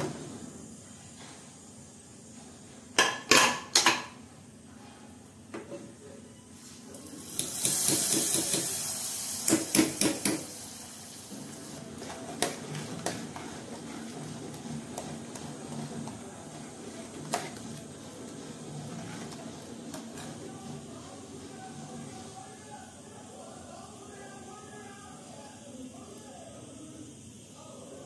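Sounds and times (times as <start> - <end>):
spice tempering sizzling: 6.9 - 23.6
stirring in metal pot: 11.3 - 22.4.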